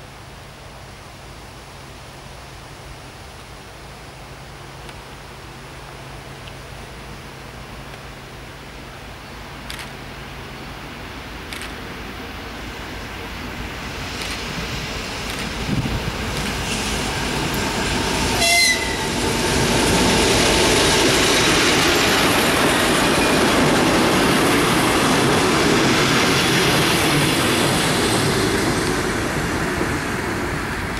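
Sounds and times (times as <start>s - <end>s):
train wheels clattering on rails: 13.7s - 30.9s
train horn blast: 18.2s - 19.2s.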